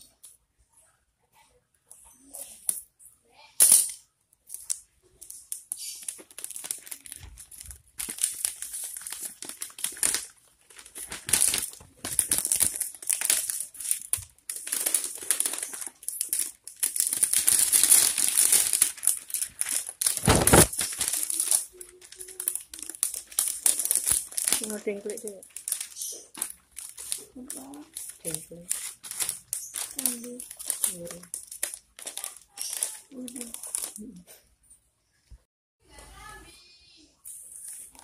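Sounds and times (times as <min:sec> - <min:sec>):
plastic sheet crinkling: 0:04.5 - 0:34.3.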